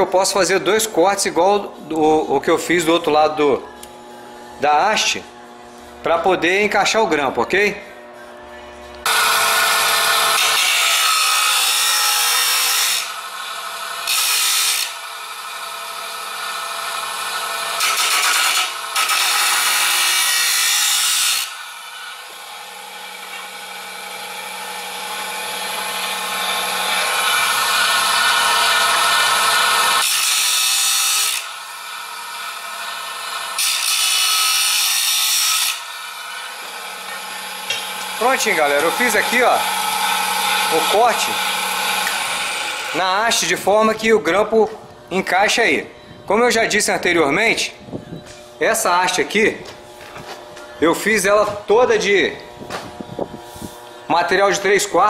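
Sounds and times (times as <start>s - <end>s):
saw motor hum: 0.0s - 45.8s
saw disc grinding steel pipe: 7.6s - 43.9s.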